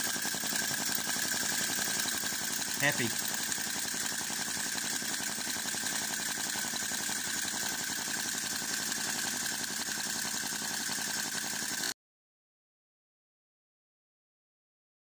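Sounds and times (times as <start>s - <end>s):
small engine popping: 0.0s - 11.9s.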